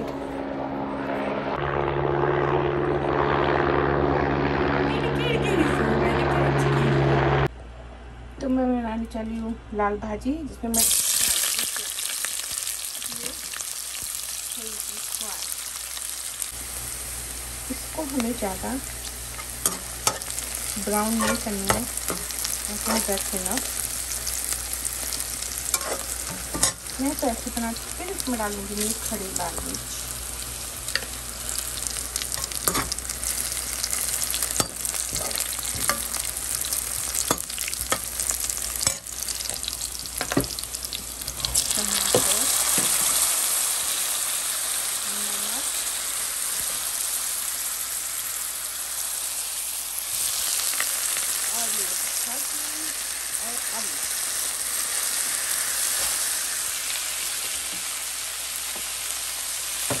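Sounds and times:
onions sizzling in hot oil: 0:10.7 - 1:00.0
metal spoon scraping a pan: 0:19.4 - 0:23.2, 0:25.7 - 0:26.9, 0:34.6 - 0:36.3.

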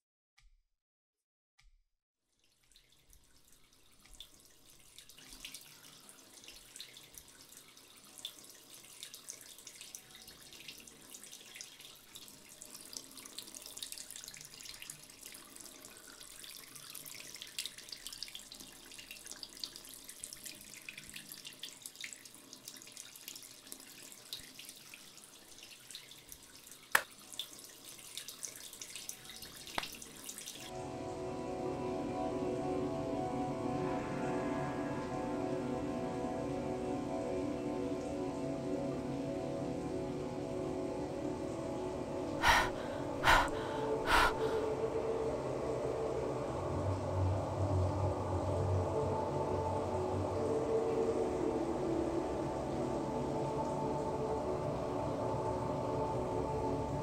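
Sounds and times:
tap water splashing into basin: 0:26.9 - 0:27.5, 0:29.0 - 0:30.7.

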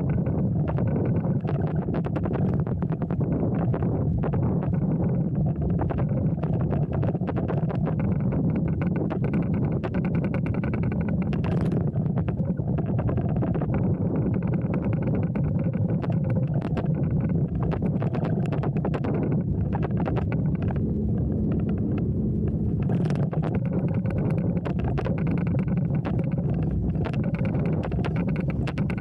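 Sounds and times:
motorboat engine humming: 0:00.0 - 0:29.0
small clicks and knocks: 0:00.0 - 0:29.0.

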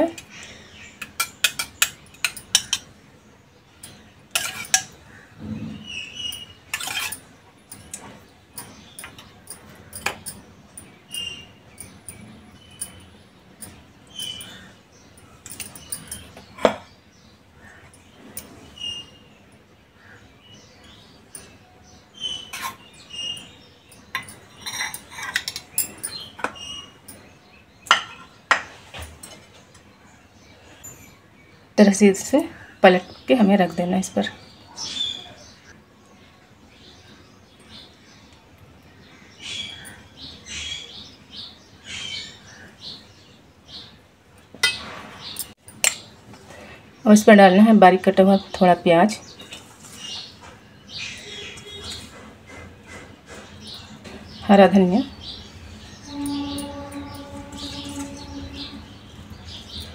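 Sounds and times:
metal spoon scraping steel bowl: 0:03.8 - 0:05.0, 0:06.2 - 0:08.0, 0:22.2 - 0:26.8, 0:55.7 - 0:59.9
spoon squeaks: 0:06.2 - 0:07.9, 0:24.2 - 0:27.0, 0:56.0 - 0:59.9
dishes knocking: 0:27.9 - 0:28.7.

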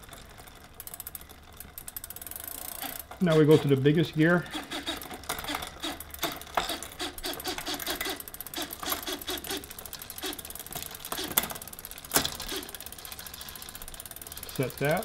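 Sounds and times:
small electric motor bursts: 0:04.3 - 0:15.0.

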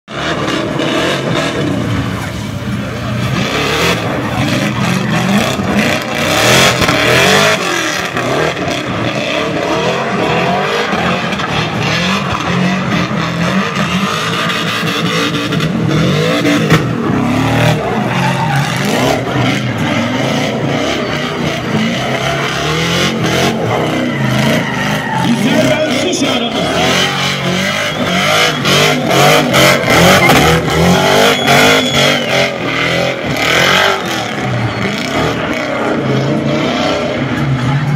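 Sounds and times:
car engine revving hard: 0:00.1 - 0:37.9.

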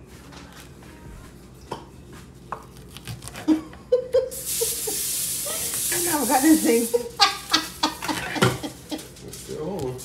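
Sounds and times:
food frying in hot oil: 0:04.4 - 0:07.7.

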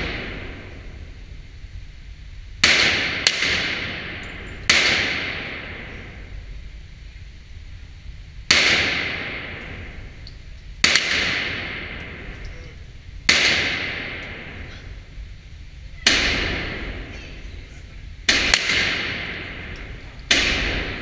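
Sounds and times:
pistol shots echoing indoors: 0:02.6 - 0:06.3, 0:08.5 - 0:10.1, 0:10.8 - 0:12.4, 0:13.2 - 0:15.0, 0:16.0 - 0:17.4, 0:18.2 - 0:21.0.

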